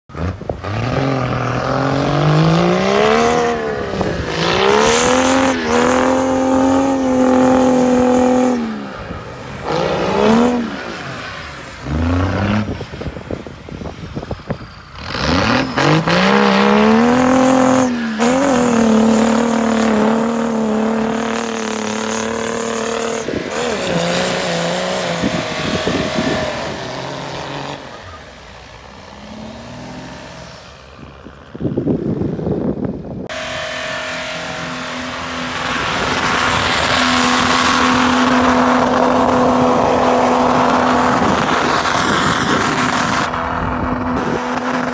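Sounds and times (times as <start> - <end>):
diesel engine revving: 0.1 - 44.9
high turbo whistle: 33.3 - 38.8.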